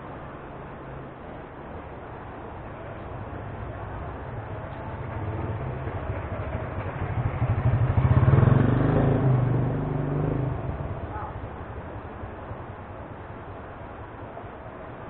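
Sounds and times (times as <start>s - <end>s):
motor vehicle engine passing: 4.4s - 11.9s.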